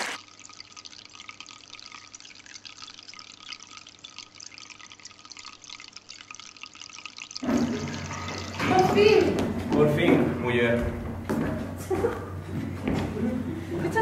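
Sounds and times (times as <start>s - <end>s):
faint trickling fountain water: 0.2s - 10.8s.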